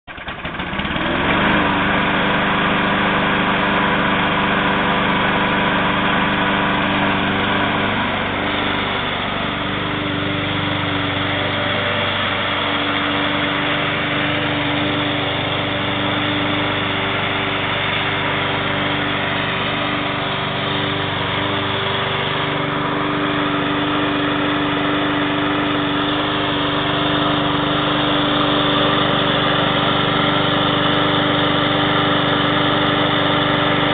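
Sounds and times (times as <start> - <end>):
lawn mower engine running: 0.0 - 33.9.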